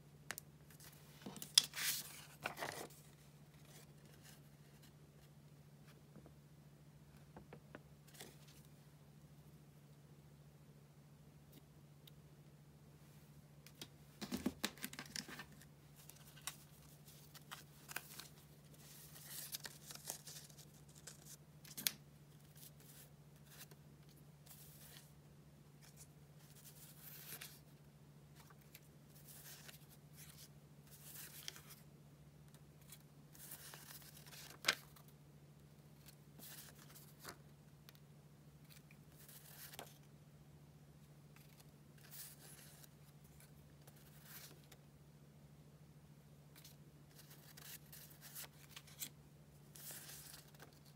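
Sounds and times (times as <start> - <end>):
faint low hum: 0.0 - 50.9
paper rustling: 0.7 - 4.9, 14.2 - 21.9, 32.8 - 35.0, 38.7 - 40.0, 49.7 - 50.9.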